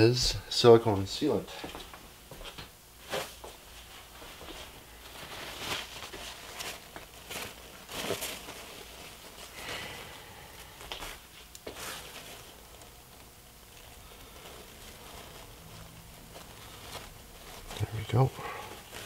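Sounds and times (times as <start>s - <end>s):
paper rustling and crinkling: 1.7s - 19.0s.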